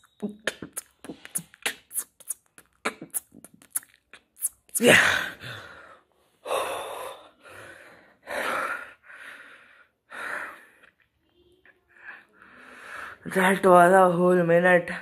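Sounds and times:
person gasping for air: 4.8s - 9.2s.

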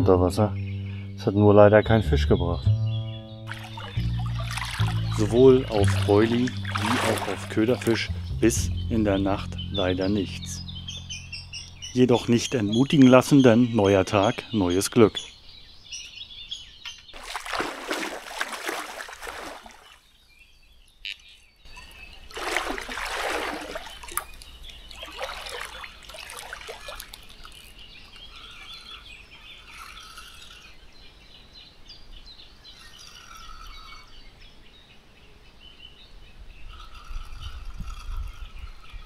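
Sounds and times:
songbirds calling: 0.0s - 39.0s
water splashing: 3.4s - 13.3s, 17.2s - 20.1s, 21.7s - 28.2s.

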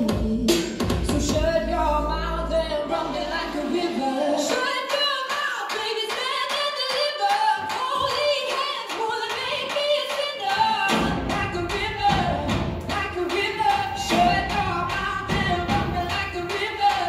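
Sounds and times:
bass: 0.0s - 4.1s, 10.9s - 17.0s
woman singing pop song: 0.0s - 17.0s.

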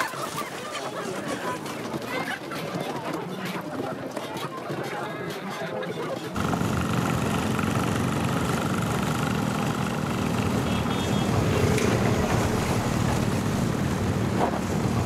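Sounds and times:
road noise: 6.3s - 15.0s
vehicle engine hum: 6.3s - 15.0s.

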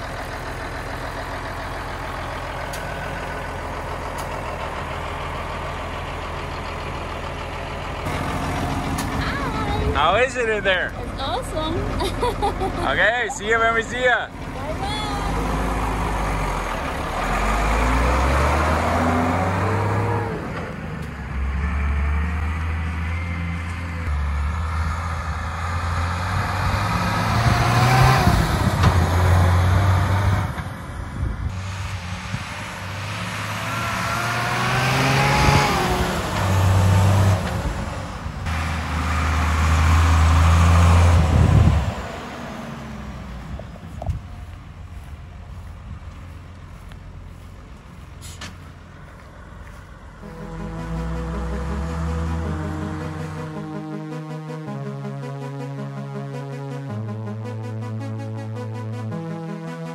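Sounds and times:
diesel truck engine accelerating: 0.0s - 59.9s
rising whine: 50.2s - 59.9s.

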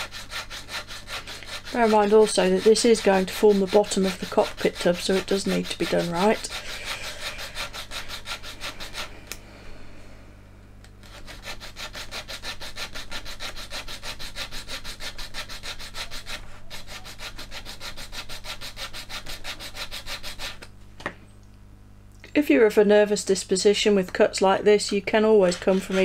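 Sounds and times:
hand saw cutting resin: 0.0s - 9.4s, 11.0s - 20.7s, 24.1s - 26.0s.

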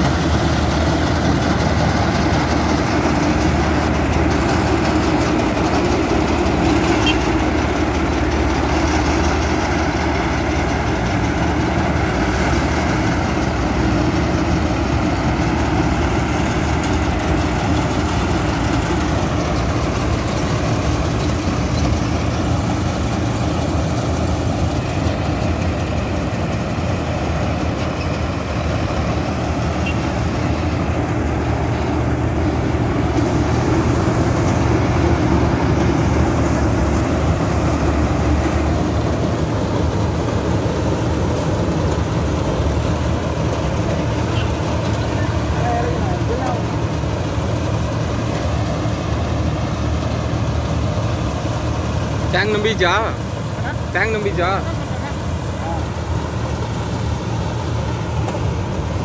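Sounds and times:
harvester cutter and threshing noise: 0.0s - 59.0s
tractor engine running under load: 0.0s - 59.0s.

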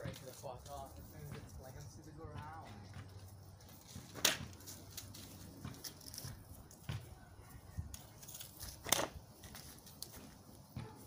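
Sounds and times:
plastic fan blade cracking on ground: 3.8s - 6.9s, 7.9s - 10.3s.

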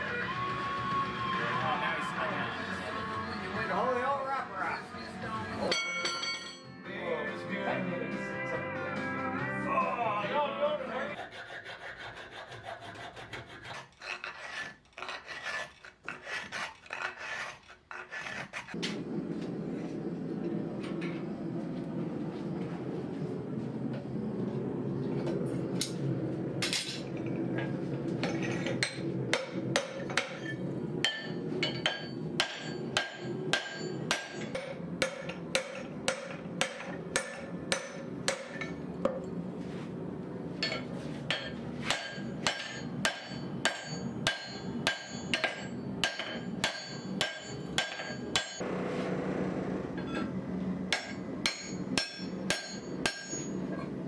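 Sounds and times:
low rumble: 18.8s - 33.5s
hammer striking hot metal: 28.2s - 38.8s, 40.6s - 48.6s, 50.9s - 53.6s.

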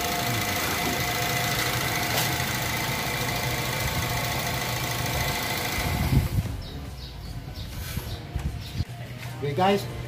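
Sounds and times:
car engine idling: 0.0s - 6.7s.

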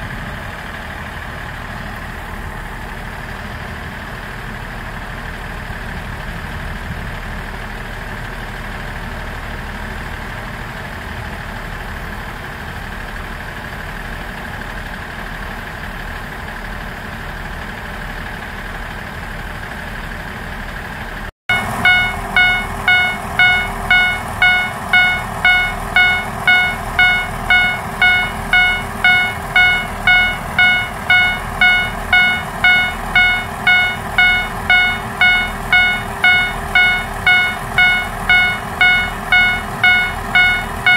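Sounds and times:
diesel railcar engine idling: 0.0s - 40.9s
level-crossing warning bell ringing: 21.5s - 40.9s.

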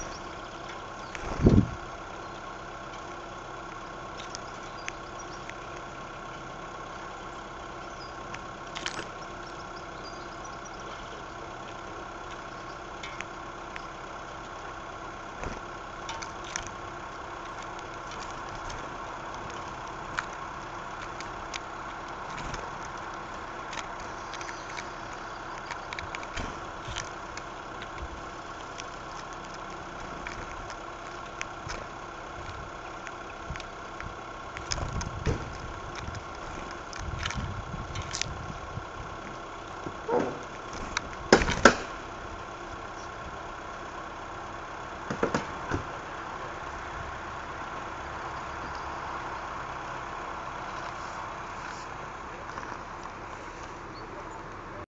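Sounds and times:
steady tonal hum: 0.0s - 54.8s
bird pecking grain on wood: 2.7s - 9.6s, 10.7s - 42.8s.

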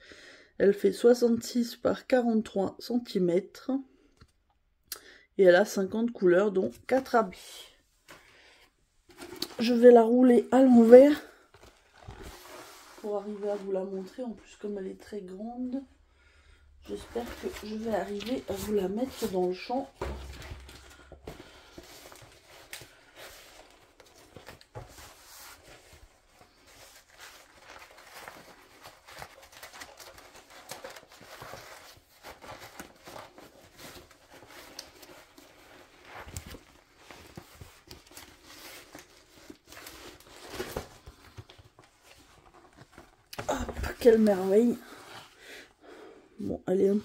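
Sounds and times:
plastic canvas crinkling: 10.6s - 14.5s, 16.9s - 45.0s.

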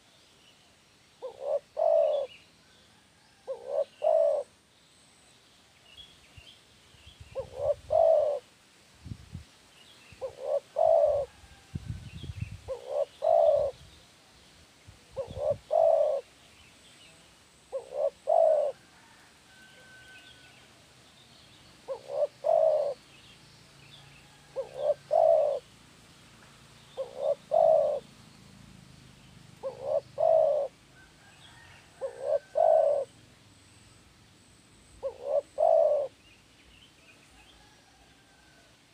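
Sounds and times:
small birds chirping: 0.0s - 2.5s, 21.1s - 25.6s, 26.3s - 30.8s
dove cooing: 1.2s - 2.4s, 3.3s - 4.6s, 7.3s - 8.5s, 10.2s - 11.6s, 12.7s - 13.8s, 15.2s - 16.4s, 17.6s - 20.5s, 21.8s - 23.0s, 24.2s - 25.7s, 26.9s - 28.1s, 29.6s - 33.2s, 34.8s - 36.2s.

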